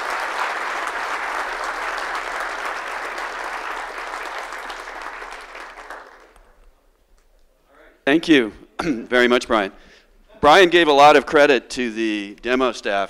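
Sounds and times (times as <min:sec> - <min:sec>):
audience clapping: 0:00.0 - 0:07.3.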